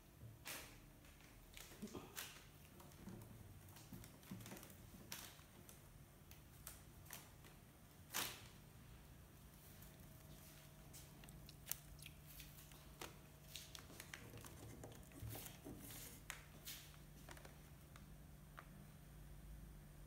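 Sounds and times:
cat clicks and scratches in crate: 0:12.4 - 0:16.5.

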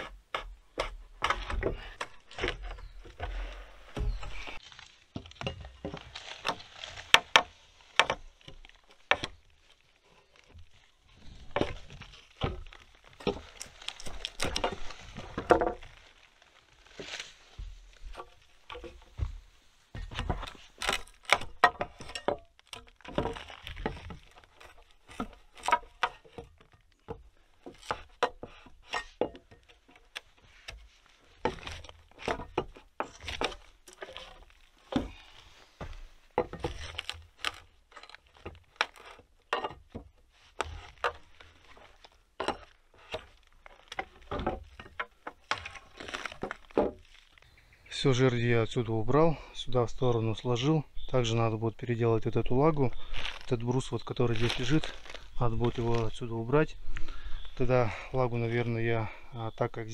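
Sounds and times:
crowbar prying wood: 0:00.0 - 0:09.6, 0:10.4 - 0:47.4
knocks and cracks of wood: 0:00.0 - 0:47.5, 0:51.8 - 0:58.1.

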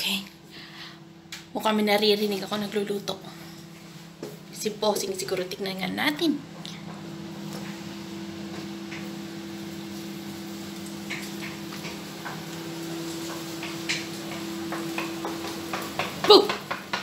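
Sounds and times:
steady hum: 0:00.0 - 0:17.0
utensil tapping frying pan: 0:10.9 - 0:17.0.

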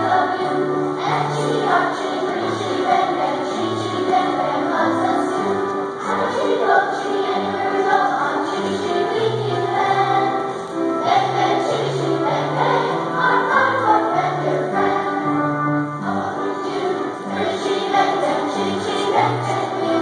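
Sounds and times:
children's choir singing: 0:00.0 - 0:20.0.

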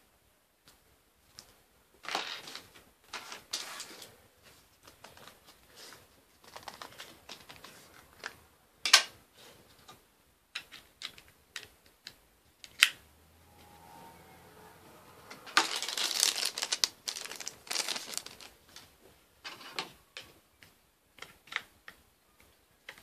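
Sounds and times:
card and plastic rustling: 0:02.0 - 0:08.4, 0:15.5 - 0:18.9.

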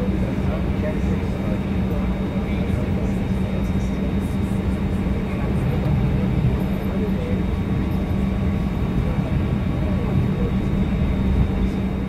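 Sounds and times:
airliner cabin hum: 0:00.0 - 0:12.0
passengers murmuring: 0:00.0 - 0:12.0.

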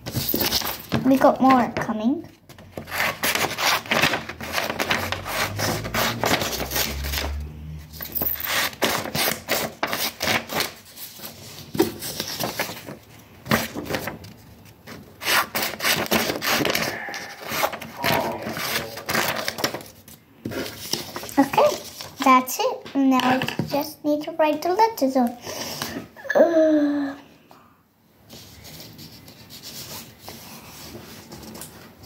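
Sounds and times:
paper rustling: 0:00.0 - 0:01.8, 0:02.4 - 0:07.4, 0:08.2 - 0:22.4.

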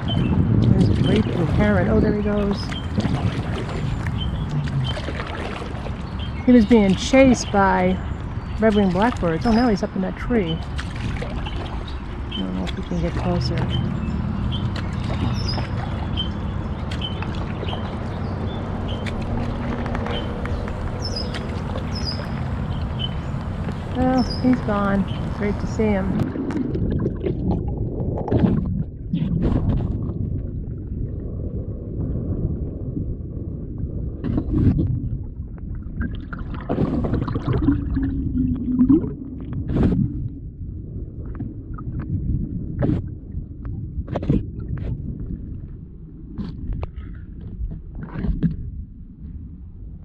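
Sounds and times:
steady low hum: 0:00.0 - 0:36.1
water splashes: 0:00.0 - 0:49.3
steady low rumble: 0:00.0 - 0:50.0
underwater sloshing and gurgling: 0:00.0 - 0:50.0
small birds chirping: 0:11.4 - 0:26.0.

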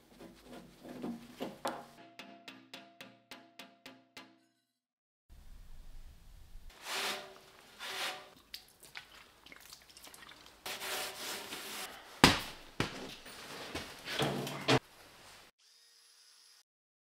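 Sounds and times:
rubbing and scraping on metal: 0:00.0 - 0:02.0, 0:06.7 - 0:08.4, 0:10.6 - 0:12.0.

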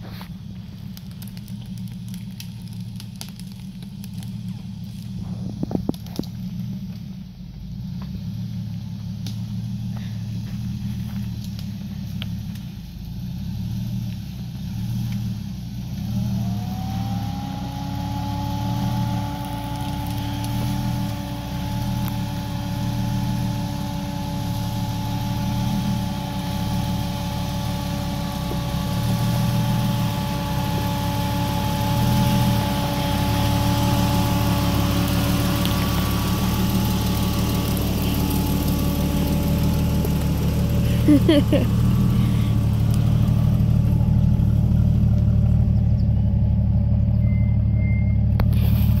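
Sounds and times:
engine rumbling low: 0:00.0 - 0:49.0
steady whine: 0:15.1 - 0:49.0.

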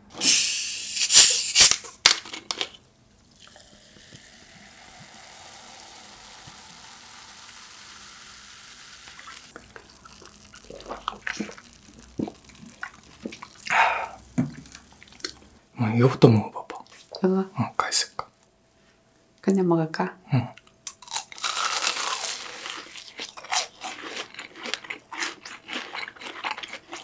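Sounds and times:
liquid pouring into mug: 0:03.3 - 0:15.2
fizzing carbonation crackles: 0:03.3 - 0:15.5.

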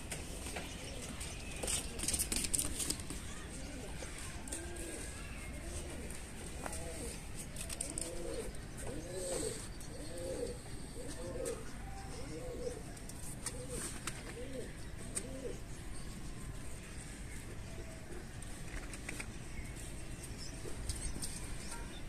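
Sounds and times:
pigeon cooing: 0:00.8 - 0:15.7.

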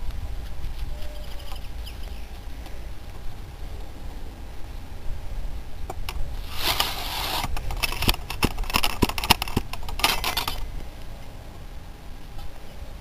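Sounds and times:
ramrod scraping in barrel: 0:06.4 - 0:10.6.

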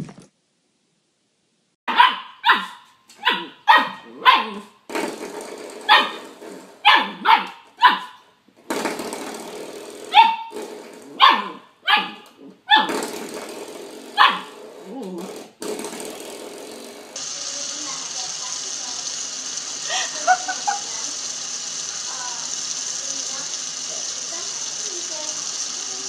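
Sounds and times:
small dog barking: 0:01.9 - 0:04.7, 0:05.9 - 0:06.2, 0:06.8 - 0:08.2, 0:10.1 - 0:10.5, 0:11.2 - 0:12.9, 0:14.2 - 0:14.5
steady rattling hiss: 0:15.5 - 0:26.0.

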